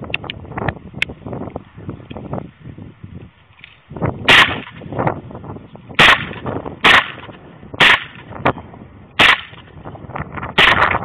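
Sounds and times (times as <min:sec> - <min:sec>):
submachine gun single shots: 0:04.3 - 0:04.8, 0:06.0 - 0:08.3, 0:09.2 - 0:09.7, 0:10.6 - 0:11.0
fainter gunshots: 0:06.0 - 0:08.2.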